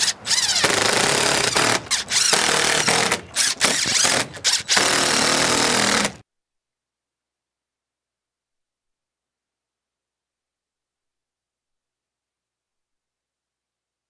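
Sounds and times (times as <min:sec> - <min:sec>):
impact driver driving screws: 0:00.0 - 0:06.2.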